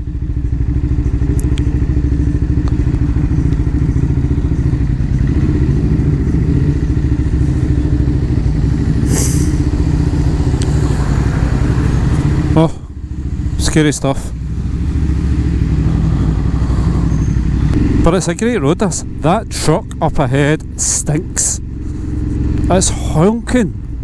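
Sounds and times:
motorcycle engine running: 0.0 - 24.0
wind and road noise: 0.0 - 24.0
short rush of hiss: 9.1 - 9.6.

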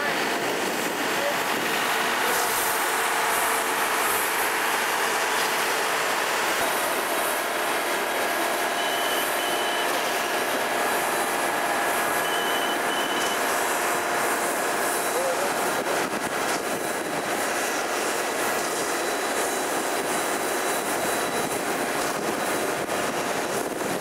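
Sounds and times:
construction vehicles running: 0.0 - 24.0
reversing alarm beeps: 8.5 - 11.2, 12.1 - 13.5, 18.9 - 22.9.

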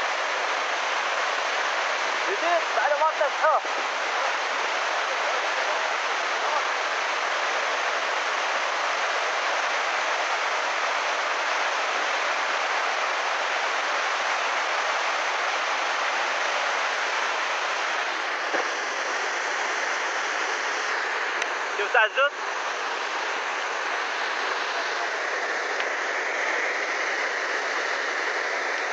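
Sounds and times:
flood water rushing: 0.0 - 28.9.

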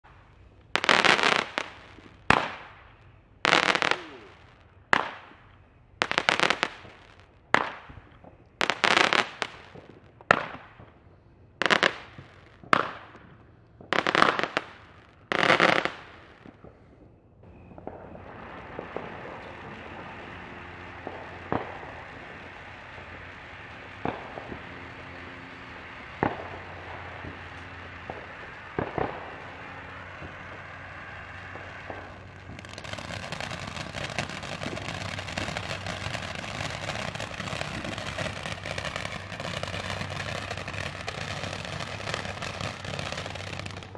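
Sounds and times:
firework crackles and bangs: 0.0 - 43.9
fountain firework hissing: 3.5 - 4.6, 17.4 - 43.9.

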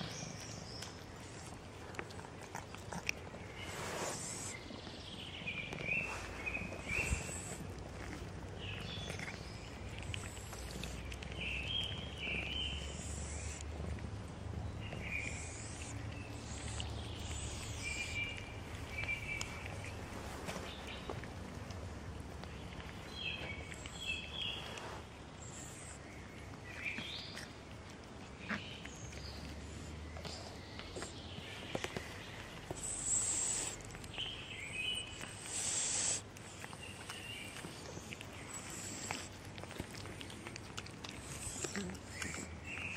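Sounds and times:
birds chirping: 0.0 - 42.9
cats chewing wet food: 0.0 - 42.9
hissy rustling: 3.5 - 4.7.

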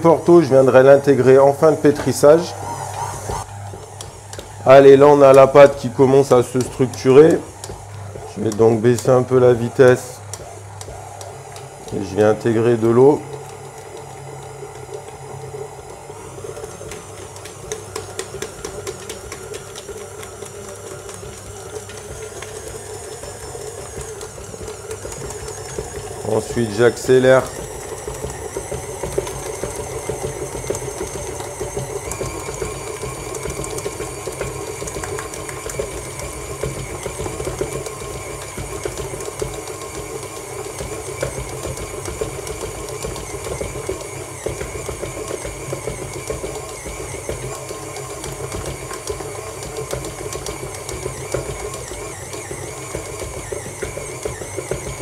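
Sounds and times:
stand mixer kneading dough: 0.0 - 55.0.

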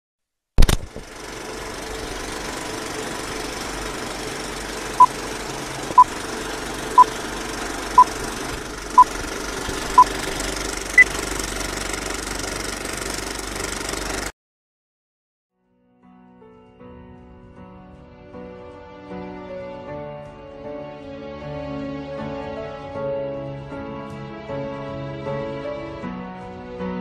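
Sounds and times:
film projector clattering: 0.6 - 14.3.

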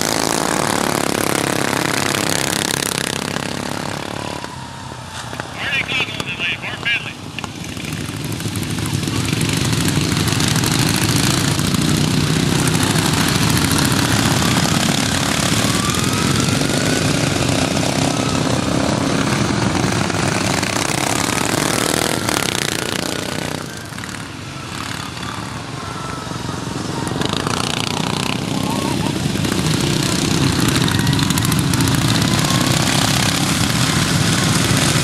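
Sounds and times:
racing lawn mower engines revving: 0.0 - 35.0.

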